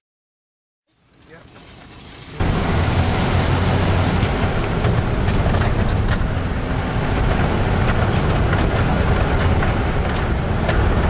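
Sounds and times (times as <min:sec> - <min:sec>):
vehicle engine and road rumble: 0:00.9 - 0:11.0
rattles and knocks: 0:04.1 - 0:11.0.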